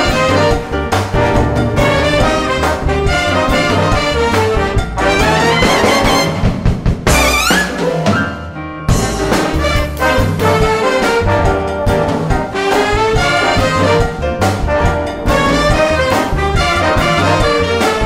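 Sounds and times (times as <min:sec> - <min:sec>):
trumpets and trombones: 0:00.0 - 0:08.0, 0:08.9 - 0:18.0
drums: 0:00.0 - 0:18.0
piano: 0:00.0 - 0:18.0
upright bass: 0:00.0 - 0:18.0.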